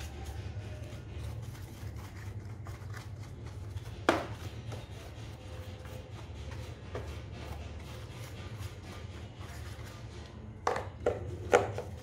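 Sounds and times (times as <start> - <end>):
paintbrush scrubbing plastic: 0.0 - 12.0.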